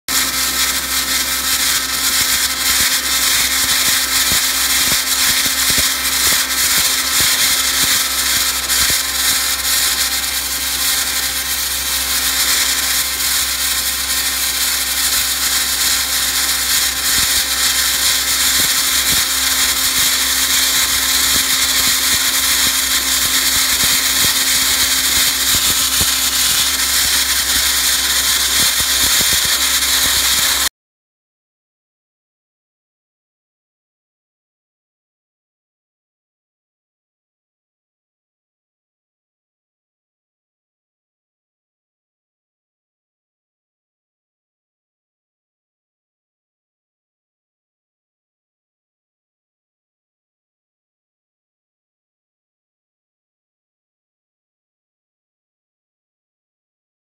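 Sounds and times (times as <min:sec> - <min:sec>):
blasting nozzle spraying hiss: 0:00.1 - 0:30.7
steady hum: 0:00.1 - 0:30.7.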